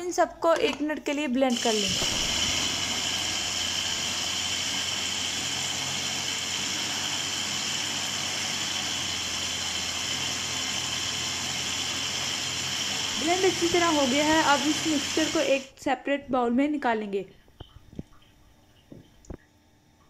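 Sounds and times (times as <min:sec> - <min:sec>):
blender motor running: 0:01.5 - 0:15.7.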